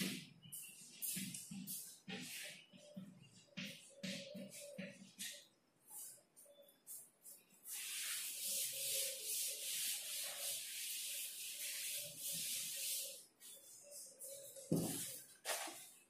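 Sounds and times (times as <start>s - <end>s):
duster rubbing on blackboard: 6.9s - 15.7s.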